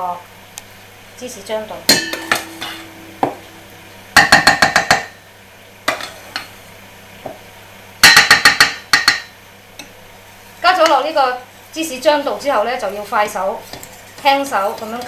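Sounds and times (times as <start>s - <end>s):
whisk clinking on metal bowl: 13.7s - 15.0s.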